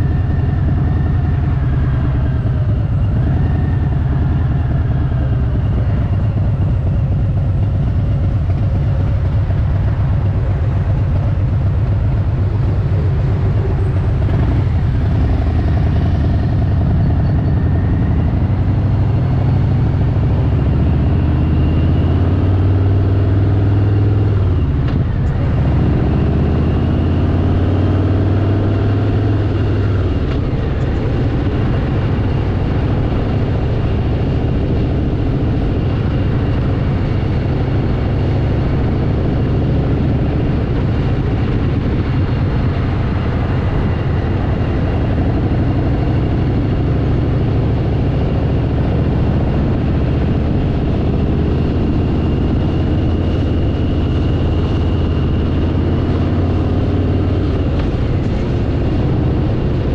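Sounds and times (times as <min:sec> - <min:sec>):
motorcycle engine running: 0:00.0 - 0:59.9
wind rush: 0:23.7 - 0:59.9.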